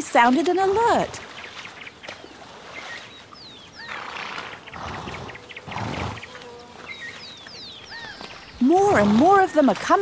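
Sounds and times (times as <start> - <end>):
horses snorting: 0.5 - 1.3, 3.8 - 6.4, 8.6 - 9.4.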